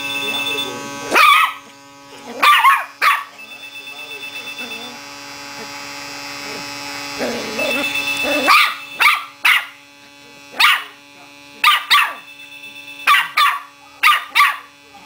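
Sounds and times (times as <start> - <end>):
puppy barking: 1.1 - 1.6, 2.4 - 3.4, 7.6 - 9.8, 10.6 - 11.0, 11.6 - 12.3, 13.0 - 14.7.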